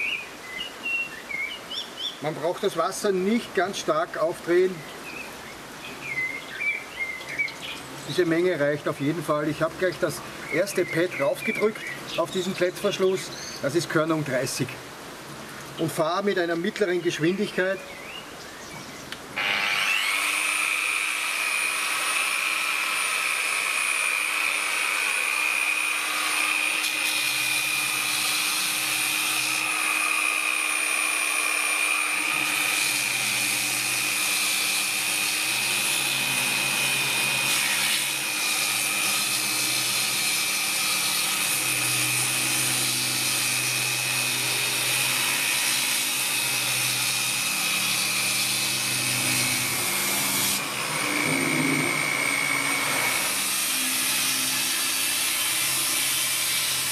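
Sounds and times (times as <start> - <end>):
wet angle grinder grinding stone: 19.4 - 56.9.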